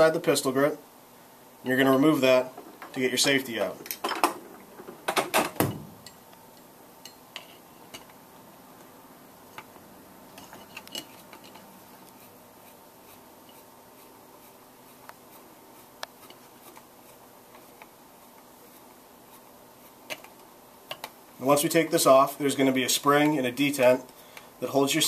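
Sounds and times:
light metal scraping: 10.3s - 14.5s.

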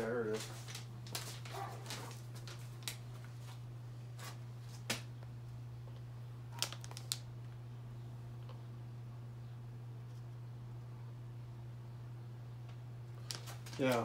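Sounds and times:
steady low hum: 0.0s - 14.0s
plastic bag crinkling: 0.2s - 3.4s, 6.6s - 7.3s, 13.2s - 14.0s.

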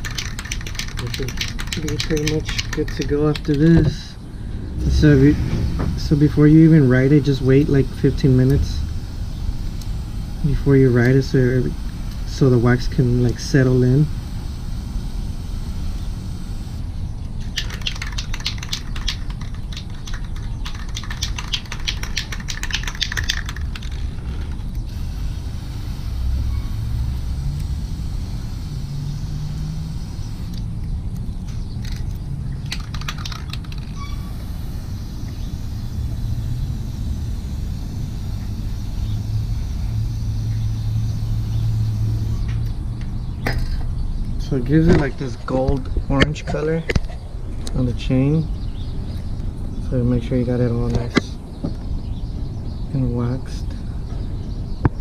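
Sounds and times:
low rumble: 3.5s - 17.2s
aerosol spray hissing: 4.8s - 16.8s, 24.9s - 30.7s, 34.0s - 42.5s.

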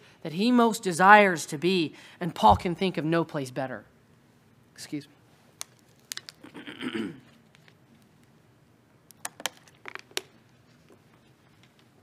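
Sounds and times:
man clearing his throat: 6.4s - 7.3s.

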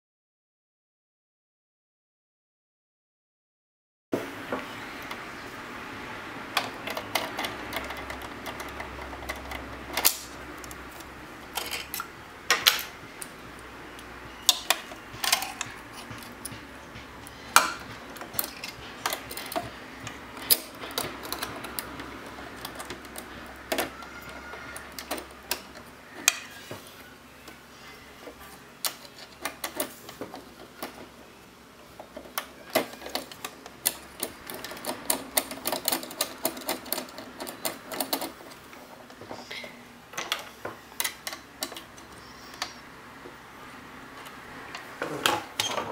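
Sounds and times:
small metal and plastic clicks: 32.0s - 38.6s.

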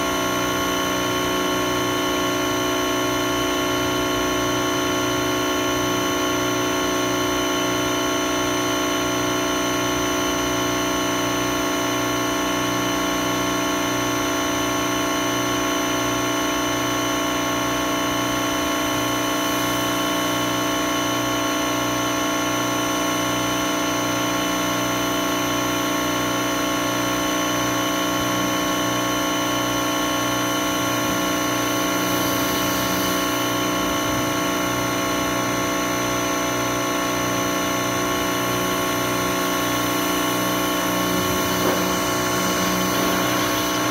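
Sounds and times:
pressure washer motor humming: 25.9s - 43.9s
water jet spraying car: 27.5s - 43.9s.

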